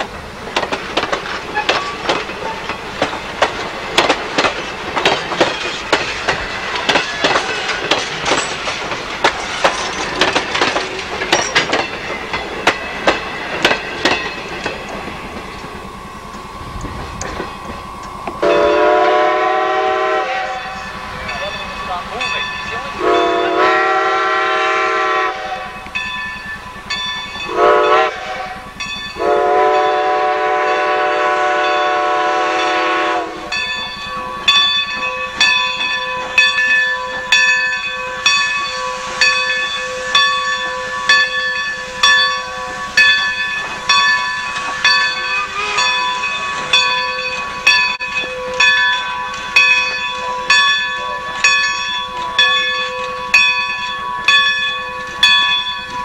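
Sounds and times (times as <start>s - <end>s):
bell ringing: 4.7s - 19.0s, 20.5s - 23.6s, 25.7s - 28.0s, 28.6s - 30.1s, 33.5s - 56.0s
steam locomotive whistle: 15.6s - 21.0s, 22.9s - 26.0s, 26.8s - 34.8s, 37.1s - 56.0s.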